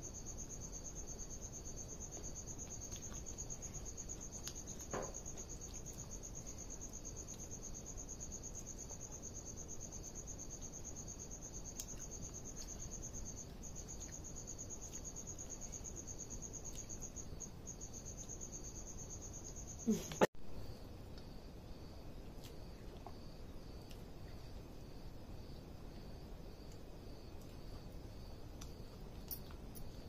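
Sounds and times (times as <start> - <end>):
crickets chirping: 0.0 - 30.0.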